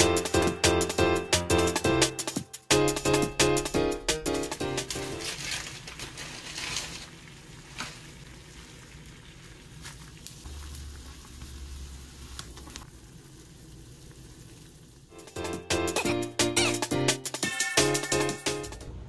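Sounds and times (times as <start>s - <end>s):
water boiling in saucepan: 5.2s - 15.1s.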